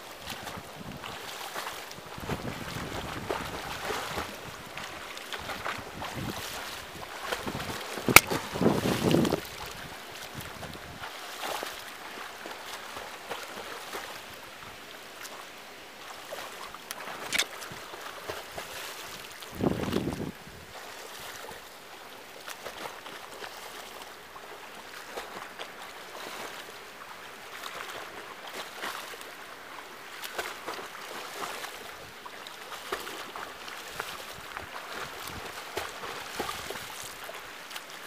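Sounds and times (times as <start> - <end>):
pool water splashing: 0.0 - 38.0
wind noise on microphone: 0.2 - 1.2, 2.0 - 11.1, 19.4 - 20.8.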